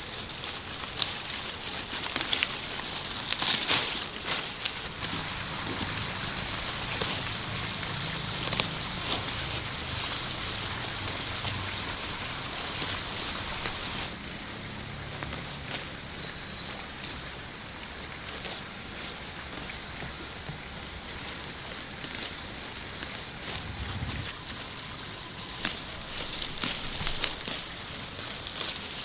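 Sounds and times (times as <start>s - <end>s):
straw rustling and crackling: 0.0s - 14.3s, 15.0s - 29.0s
steady hiss: 4.0s - 14.6s
low hum: 23.4s - 27.5s.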